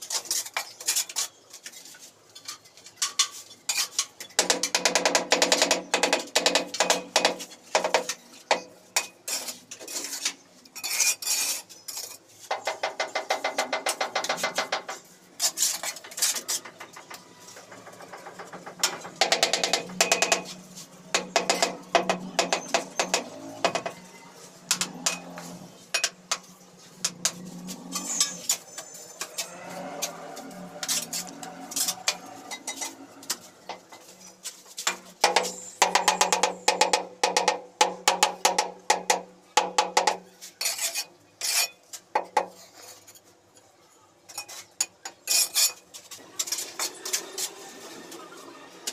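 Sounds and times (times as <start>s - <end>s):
trowel scraping mortar: 9.3s - 12.2s, 24.7s - 33.4s, 40.5s - 41.8s, 45.3s - 45.8s.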